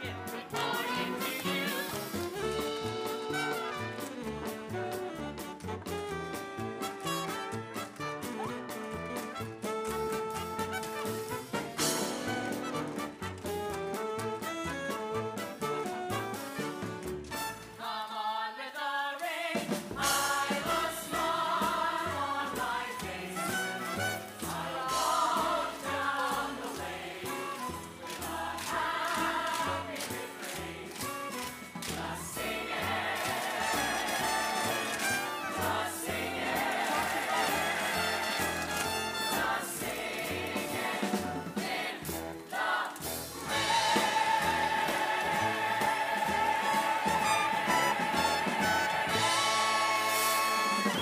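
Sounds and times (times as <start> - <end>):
ensemble singing in chorus: 0.0 - 3.8, 17.8 - 51.0
orchestral accompaniment: 0.0 - 17.8, 20.0 - 51.0.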